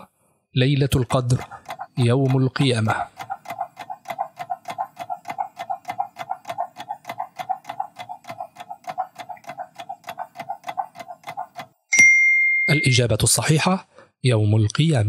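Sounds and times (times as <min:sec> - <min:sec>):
fast clock-like ticking: 0:00.8 - 0:11.9.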